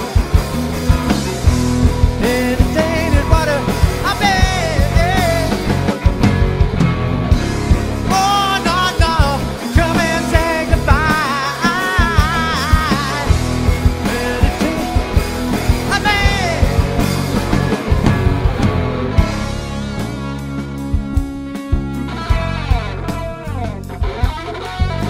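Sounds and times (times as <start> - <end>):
rock band playing live: 0.0 - 25.0
man singing long notes: 2.1 - 5.8, 8.1 - 16.9.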